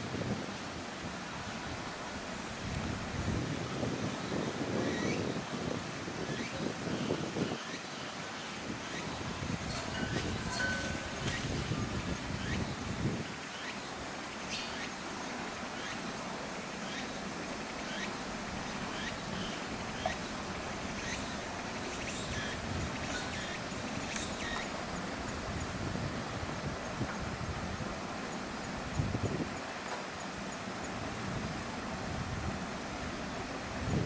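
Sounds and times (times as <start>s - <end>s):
steady background hiss: 0.0s - 34.0s
thin high hiss: 8.6s - 30.4s
high falling chirps: 9.0s - 12.6s.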